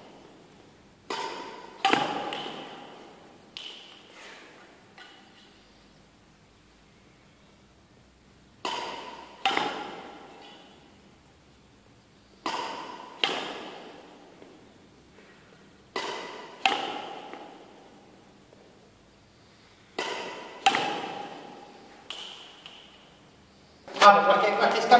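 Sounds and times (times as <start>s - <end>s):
racket hitting shuttlecock: 1.0s - 5.4s, 8.6s - 11.0s, 12.4s - 14.6s, 15.9s - 18.2s, 19.9s - 23.1s.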